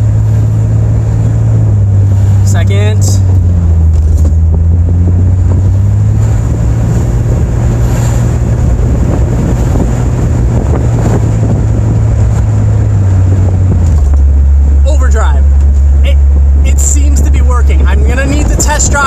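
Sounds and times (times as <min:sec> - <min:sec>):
engine and road drone: 0:00.0 - 0:19.0
wind rushing at microphone: 0:00.0 - 0:19.0.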